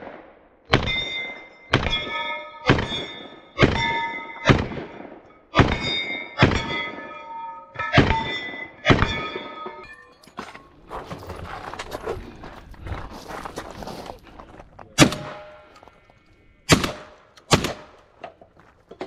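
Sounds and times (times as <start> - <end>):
gunshots: 0.0 - 7.1, 15.0 - 15.7, 16.7 - 18.0
metallic ring of steel targets: 0.7 - 10.8.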